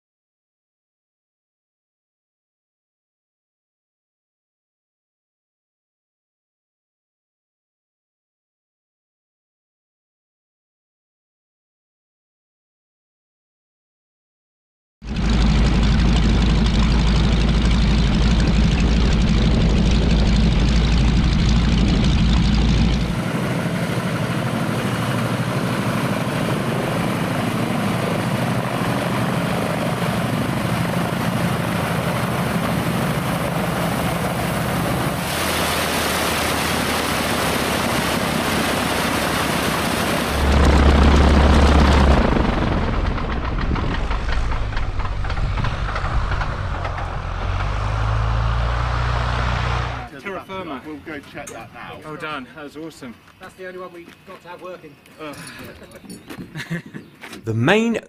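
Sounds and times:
radial aircraft engine and propeller: 15.0s - 53.6s.

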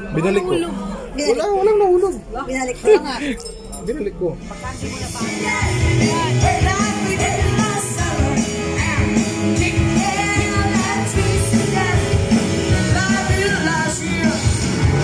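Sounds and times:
live band playing rock music: 4.7s - 15.0s
person singing: 4.9s - 15.0s.

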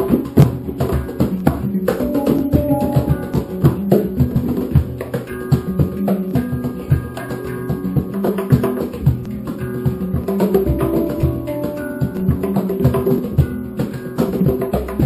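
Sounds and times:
hand drum hits: 0.0s - 7.3s, 8.0s - 15.0s
handpans playing: 1.8s - 4.9s, 9.6s - 14.1s.

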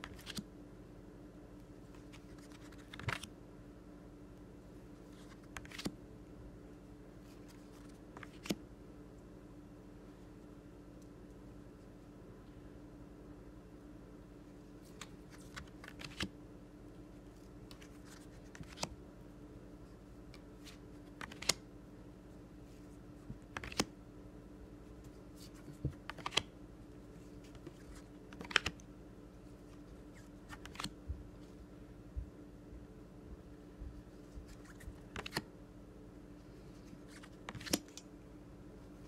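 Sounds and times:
faint steady hum: 0.0s - 39.0s
cards clicking and tapping: 21.1s - 21.6s, 25.4s - 26.5s, 27.5s - 28.8s, 34.6s - 35.4s, 37.2s - 38.0s.

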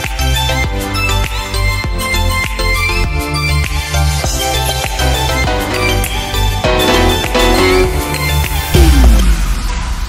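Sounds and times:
instrumental music with steady beat: 0.0s - 9.5s.

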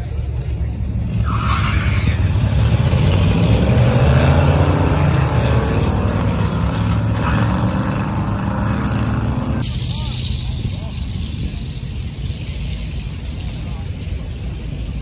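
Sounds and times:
car engine running: 2.3s - 9.6s.

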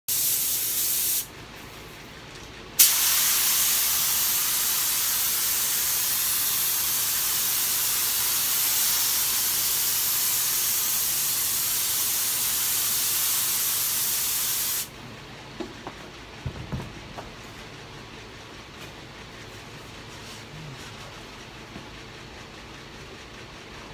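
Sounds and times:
spray gun hissing: 0.1s - 1.3s, 2.8s - 14.9s.

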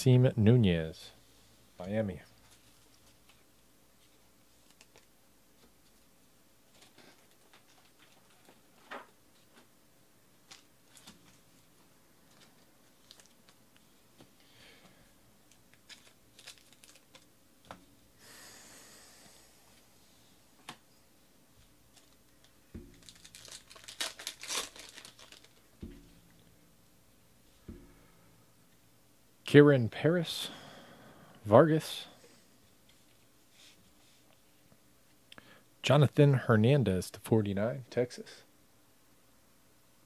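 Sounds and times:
cards clicking and rustling: 4.6s - 5.1s, 15.5s - 17.3s, 22.0s - 26.1s
foil wrapper crinkling and tearing: 15.7s - 17.3s, 22.0s - 25.7s.

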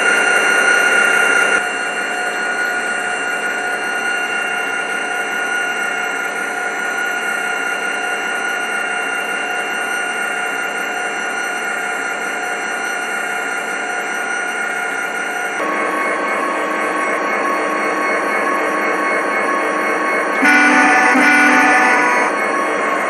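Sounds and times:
model train motor and wheels whirring: 9.7s - 23.0s.

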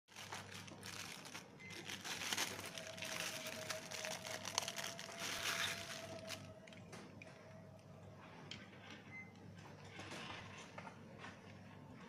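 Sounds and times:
plastic bag crinkling: 0.1s - 6.7s.

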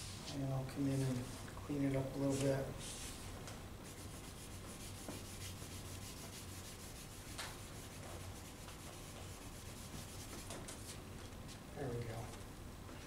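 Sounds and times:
low steady hum: 0.0s - 13.0s
crayon strokes on paper: 3.9s - 11.0s.

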